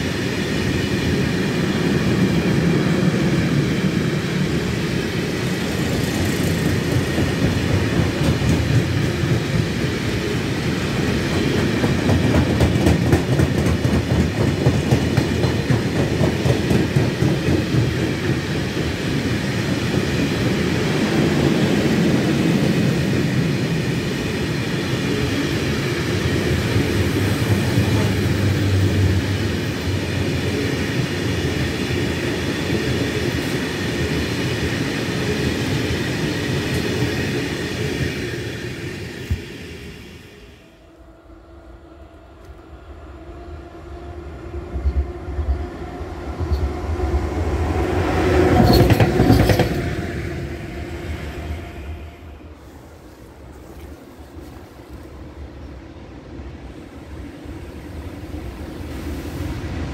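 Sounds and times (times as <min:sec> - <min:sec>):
freight train rolling past: 0:00.0 - 0:59.9.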